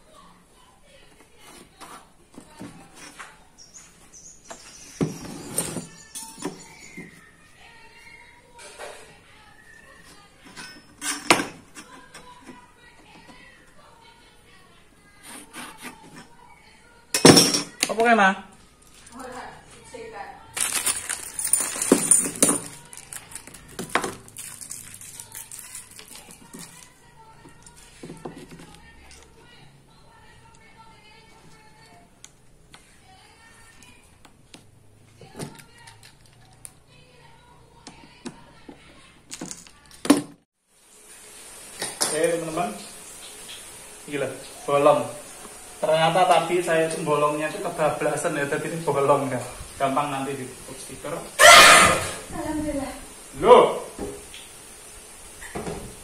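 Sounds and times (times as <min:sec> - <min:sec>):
plastic bag rustling: 0:20.5 - 0:27.1.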